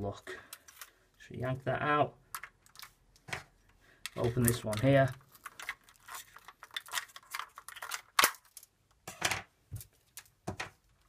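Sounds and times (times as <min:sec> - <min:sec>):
tape rustling: 0:02.3 - 0:08.7.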